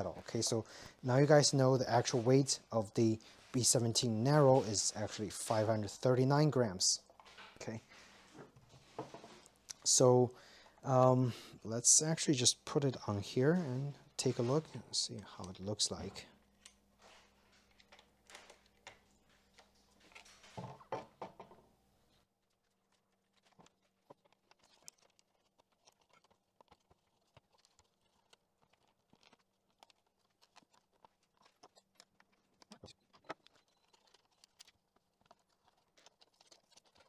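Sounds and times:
scraping rustle: 0:13.6 - 0:14.9.

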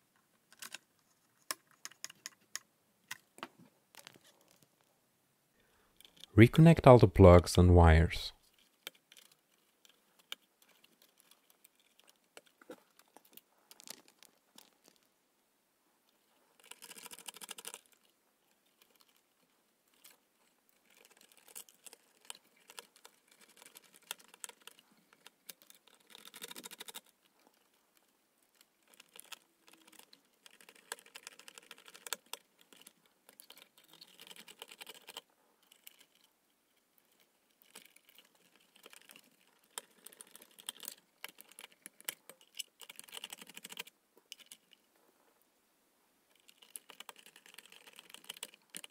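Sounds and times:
wires rustling: 0:16.1 - 0:45.4.

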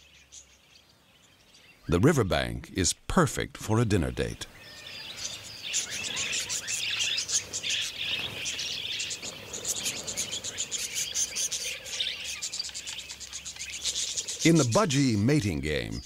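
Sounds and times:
budgerigars chirping and warbling: 0:04.2 - 0:16.0
rapid ticking bird chatter: 0:04.4 - 0:16.0.

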